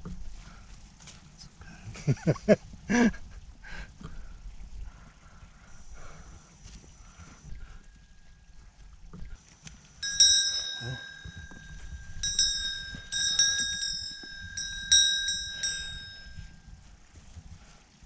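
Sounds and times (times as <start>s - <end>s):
small metal bell jingling: 10.0s - 16.7s.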